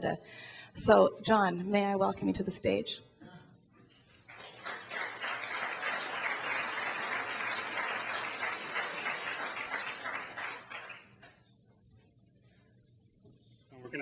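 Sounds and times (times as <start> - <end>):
audience applauding: 4.3 - 11.3.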